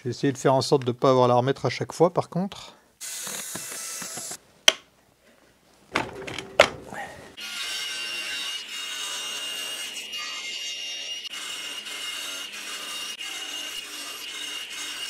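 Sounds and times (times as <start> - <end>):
table saw whining: 6.9 - 15.0.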